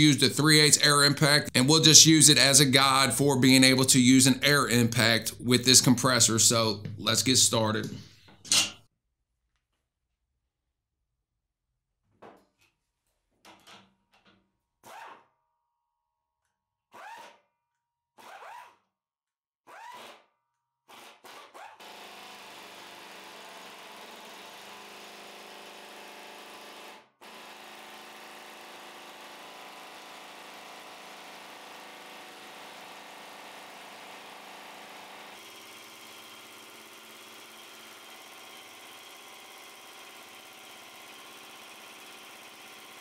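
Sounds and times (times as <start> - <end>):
air impact wrench running: 21.9 - 43.0.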